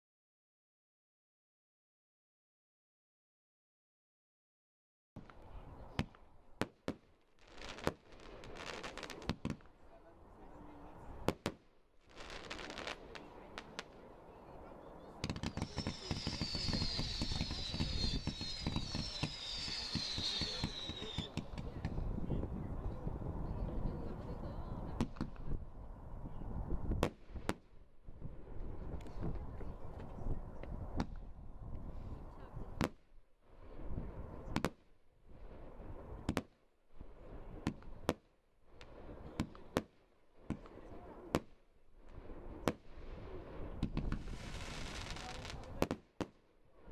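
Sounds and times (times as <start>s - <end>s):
falling firework whistles: 15.2s - 21.8s
firework launch shots: 15.2s - 22.0s, 37.6s - 46.4s.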